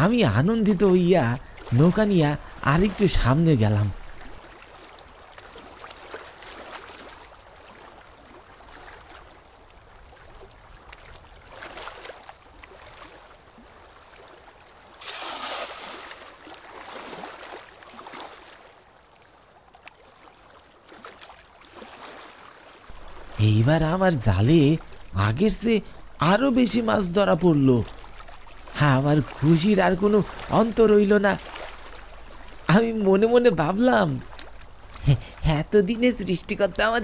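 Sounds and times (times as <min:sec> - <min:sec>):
water lapping against rowboat: 0:00.0 - 0:37.0
water splash: 0:14.9 - 0:18.5.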